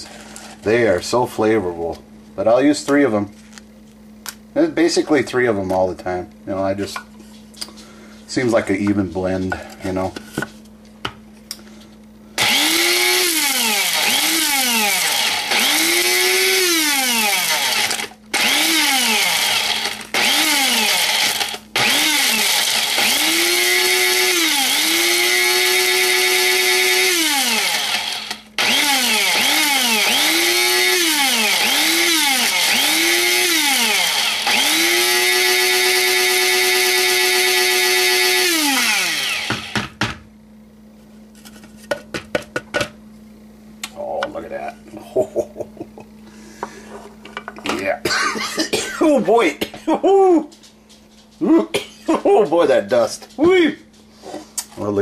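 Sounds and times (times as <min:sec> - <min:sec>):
electric spice grinder whining: 0:12.4 - 0:40.1.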